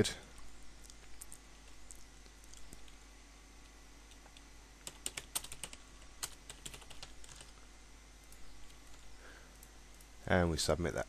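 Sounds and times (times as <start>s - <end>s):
typing on computer keyboard: 4.8s - 7.6s.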